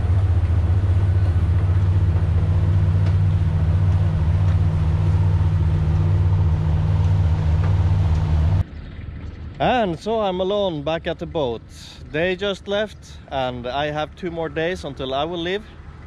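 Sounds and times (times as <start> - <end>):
ferry engine idling drone: 0.0 - 16.0
water churning: 0.0 - 16.0.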